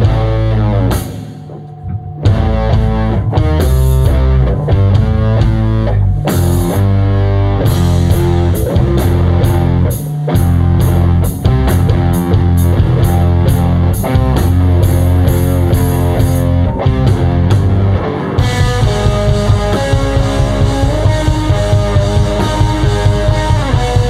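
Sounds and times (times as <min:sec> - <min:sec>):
guitar riffs: 0:00.0 - 0:24.0
rock band playing live: 0:00.0 - 0:24.0.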